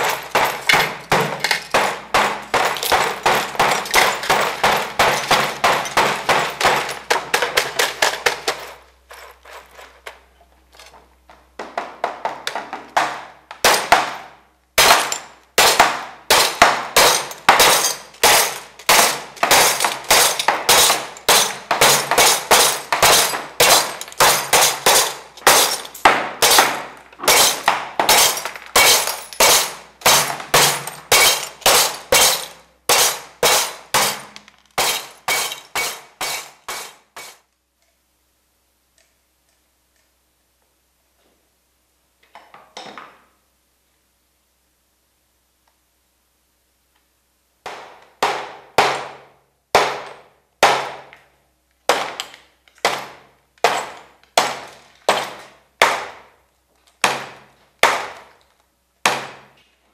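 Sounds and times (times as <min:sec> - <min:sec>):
glass smashing: 0:00.0 - 0:09.8, 0:14.8 - 0:37.3.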